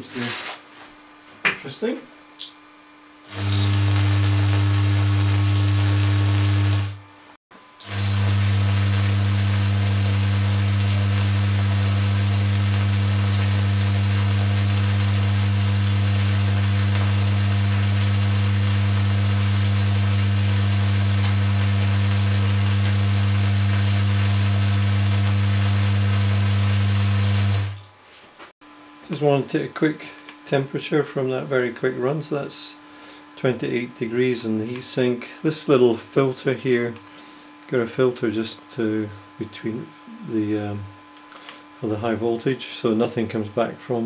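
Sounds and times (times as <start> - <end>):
tesla coil buzzing with hiss: 3.2 - 7.0, 7.8 - 27.9.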